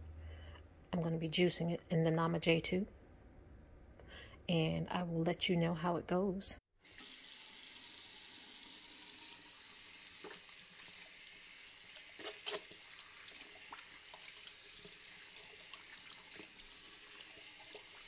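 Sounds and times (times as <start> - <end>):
tap water running into sink: 6.8 - 18.0.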